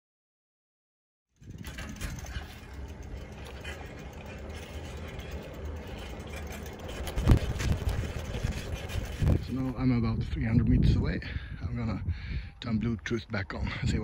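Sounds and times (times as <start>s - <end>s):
bicycle ticking and rattling: 1.4s - 10.1s
low rumble of tyres: 1.4s - 14.0s.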